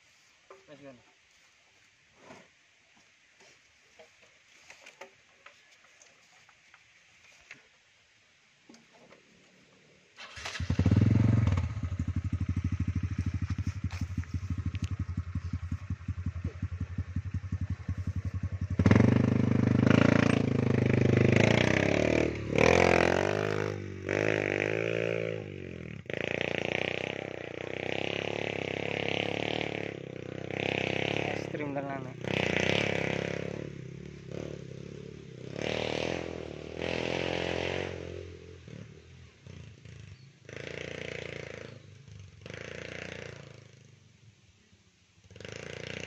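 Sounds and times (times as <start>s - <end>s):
motorcycle engine idling and revving: 10.2s - 44.4s, 45.2s - 46.0s.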